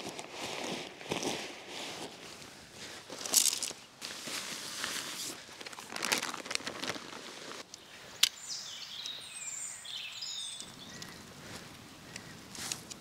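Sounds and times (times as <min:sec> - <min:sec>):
tent fabric rustling: 0:00.0 - 0:07.7
bird whistling and chirping: 0:08.4 - 0:11.2
tent poles snapping together: 0:12.2 - 0:13.0.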